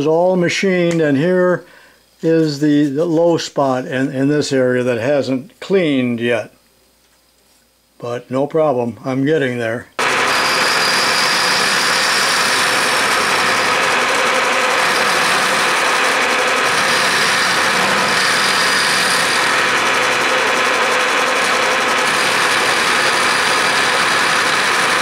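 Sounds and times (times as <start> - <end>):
milling machine cutting metal: 10.0 - 25.0.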